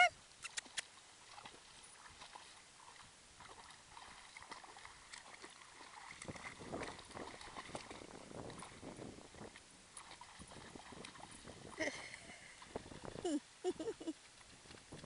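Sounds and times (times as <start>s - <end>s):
dog splashing in water: 0.4s - 11.9s.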